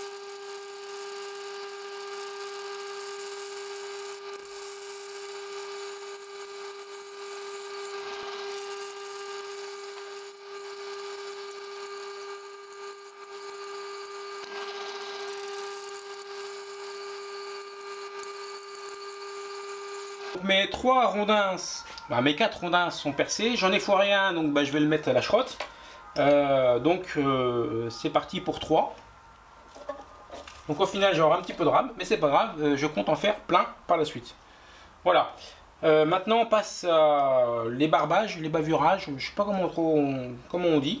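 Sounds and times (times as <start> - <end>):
drill bit boring into plastic: 0.0 - 20.4
drill press motor whine: 0.0 - 24.0.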